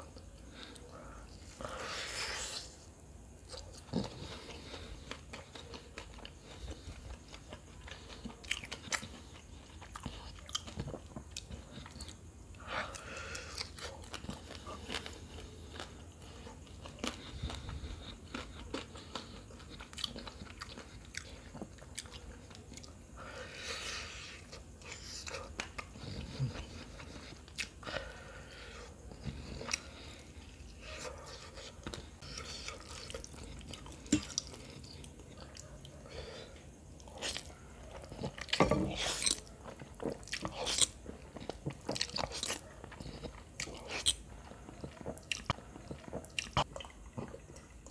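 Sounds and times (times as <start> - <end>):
chewing and mouth smacks: 3.4 - 12.2, 13.0 - 23.0, 29.1 - 36.0, 37.0 - 47.9.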